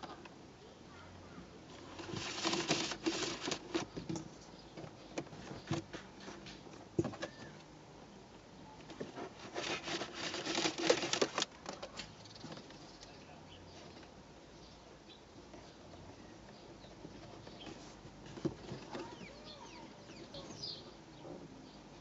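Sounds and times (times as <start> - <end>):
cable rustling and clicking: 1.8 - 7.4, 8.8 - 13.2.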